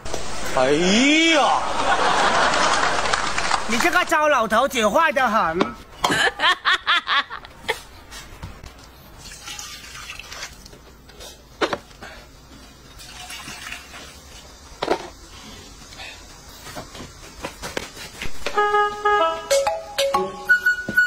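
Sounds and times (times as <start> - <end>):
liquid splashing into metal bowls: 9.2 - 10.9, 12.9 - 14.6.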